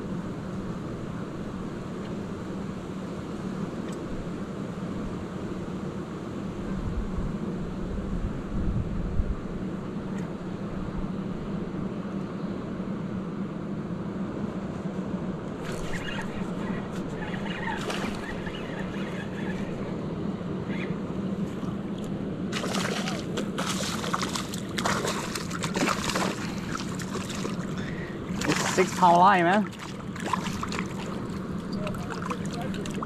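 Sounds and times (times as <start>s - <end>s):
low hum: 8.8s - 33.0s
water splashes: 15.6s - 19.8s, 21.4s - 33.0s
rushing water: 21.6s - 33.0s.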